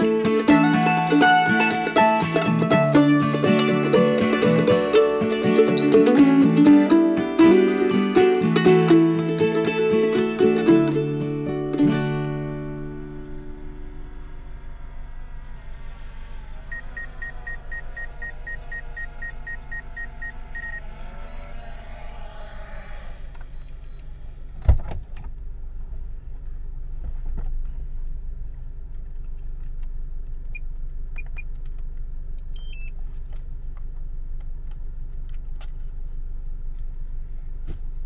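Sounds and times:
rapid electronic beeping: 16.7 - 21.7.

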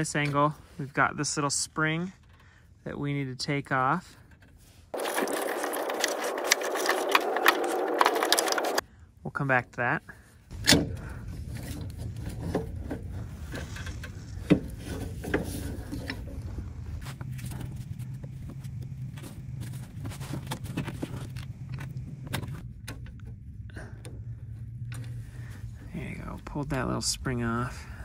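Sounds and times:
steady low hum: 10.5 - 28.0.

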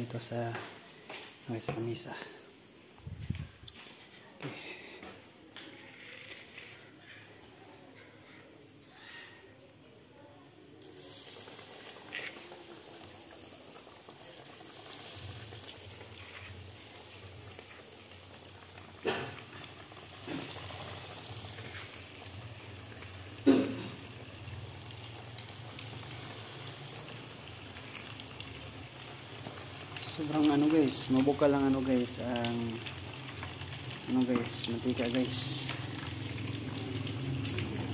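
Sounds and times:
chicken frying in oil: 10.8 - 37.9.

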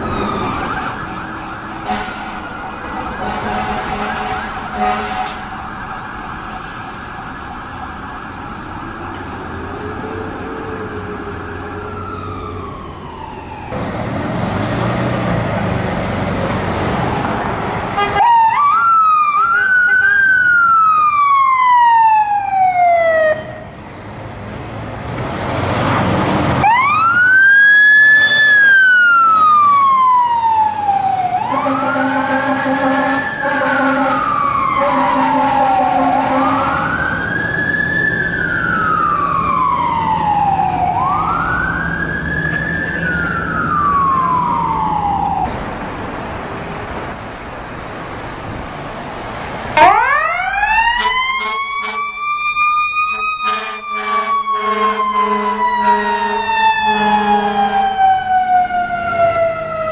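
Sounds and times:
fire truck siren wailing: 0.0 - 47.3, 48.2 - 59.9
fire truck horn blasts: 1.8 - 5.6, 18.0 - 18.5, 19.3 - 20.3, 31.4 - 36.9, 49.8 - 50.1, 50.9 - 52.2, 53.0 - 57.9.

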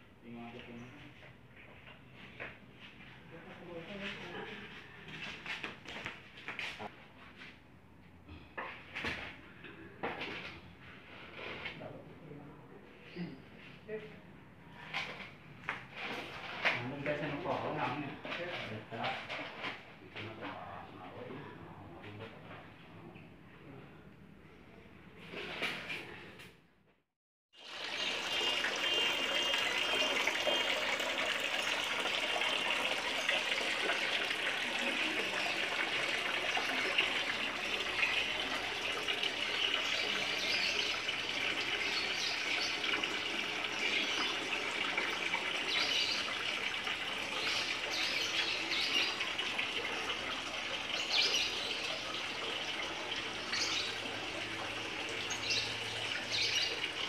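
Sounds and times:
fountain water splashing: 27.6 - 57.0.

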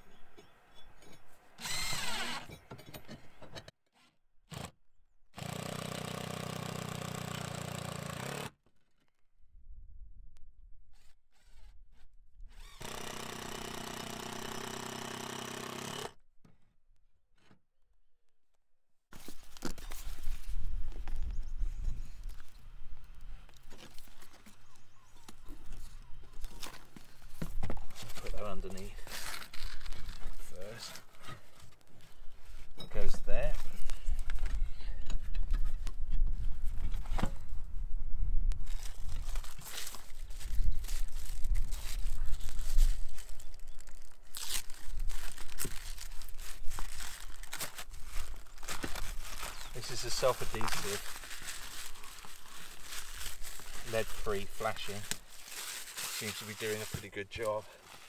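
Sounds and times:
impact driver running: 1.6 - 2.5, 12.8 - 16.2
rough handling noise: 38.5 - 58.0.

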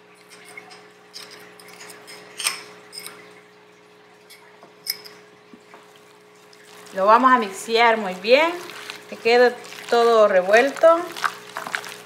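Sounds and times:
faint steady hum: 0.0 - 12.0
fork clinking on ceramic bowl: 4.9 - 5.2.

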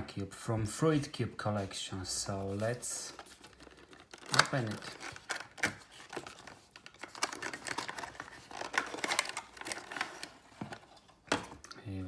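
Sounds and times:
cardboard box rustling and clicking: 3.3 - 11.6.

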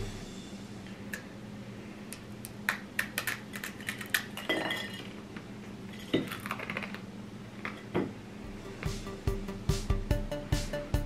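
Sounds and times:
forks clinking on plates: 3.2 - 5.1.

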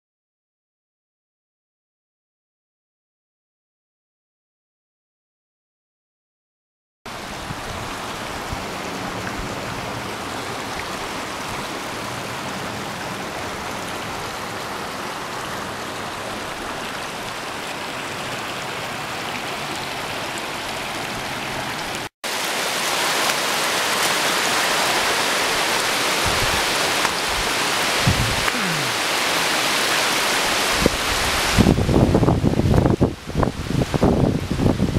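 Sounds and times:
creek rushing over rocks: 7.1 - 34.9.

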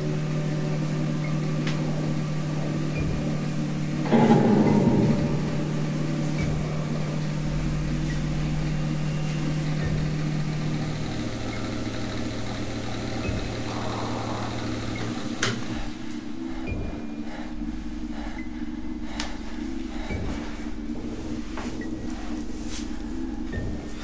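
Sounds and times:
low horror soundtrack drone: 0.0 - 24.0
sharp musical hit: 4.0 - 9.1.

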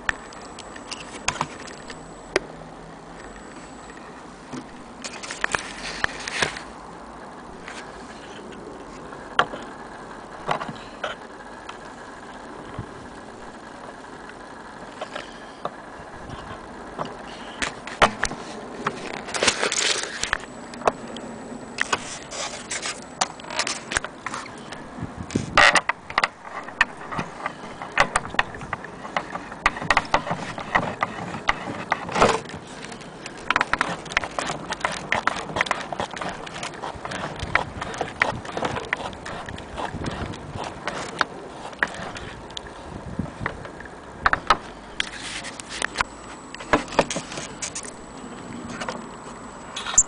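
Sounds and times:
metal parts clicking and scraping: 5.0 - 6.7, 16.5 - 21.0, 21.8 - 42.6, 44.2 - 48.0.

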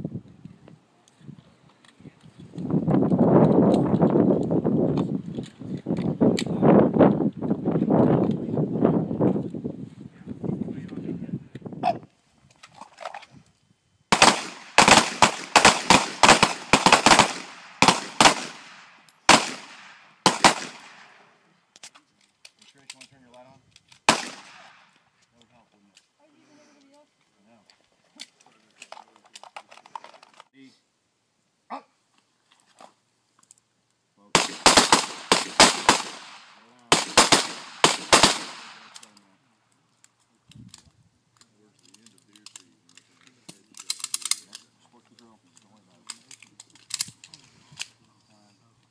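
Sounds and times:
handgun shots echoing: 14.2 - 21.1, 24.1 - 24.8, 34.4 - 39.1.

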